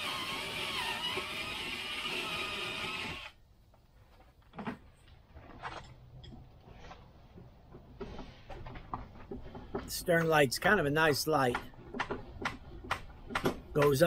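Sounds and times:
cordless drill boring into wood: 0:00.0 - 0:03.4
faint clicks and knocks: 0:03.7 - 0:10.4.

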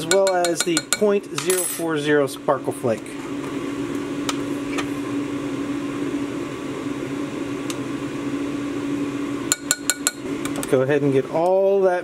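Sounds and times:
metal spoon ticking: 0:00.0 - 0:01.1, 0:09.5 - 0:10.2
appliance humming: 0:00.0 - 0:12.0.

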